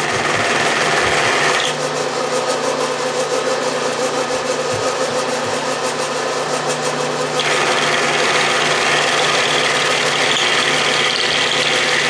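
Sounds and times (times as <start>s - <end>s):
milling machine motor hum: 0.0s - 12.0s
rough metal cutting sound: 0.0s - 12.0s.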